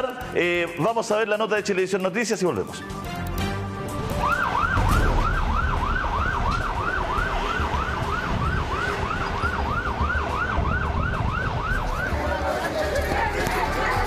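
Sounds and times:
police siren yelp: 0:04.1 - 0:14.0
low street rumble: 0:04.2 - 0:14.0.

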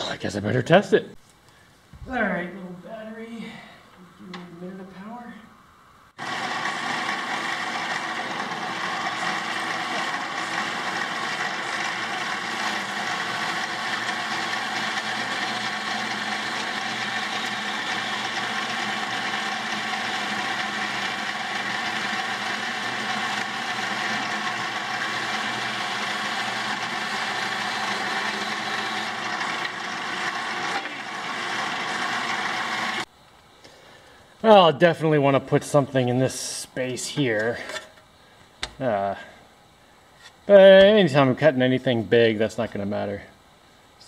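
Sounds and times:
bandsaw cutting wood: 0:06.2 - 0:33.1.

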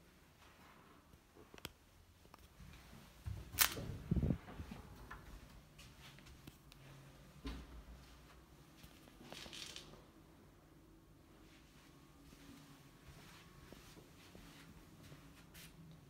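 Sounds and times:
door opening and shutting: 0:03.3 - 0:04.3.

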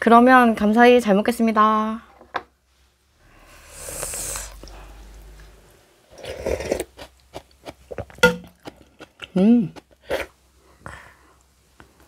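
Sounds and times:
person slurping noodles: 0:03.3 - 0:05.3, 0:06.1 - 0:07.1.

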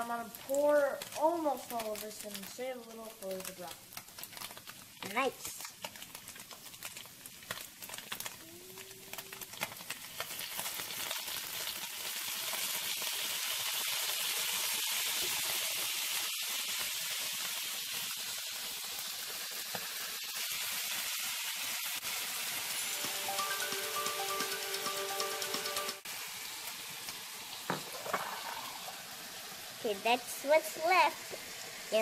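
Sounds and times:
tofu sizzling in oil: 0:00.0 - 0:25.4, 0:26.0 - 0:32.0
sauce poured into hot pan: 0:26.1 - 0:32.0.

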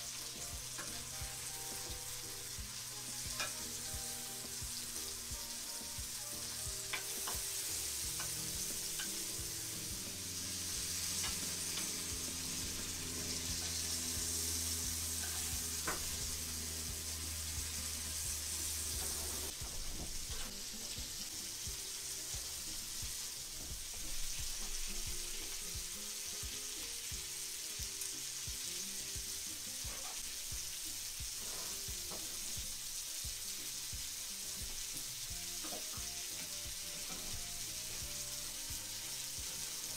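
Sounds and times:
fish sizzling in a pan: 0:00.0 - 0:39.9
spoon clinking against pan: 0:03.3 - 0:03.8.

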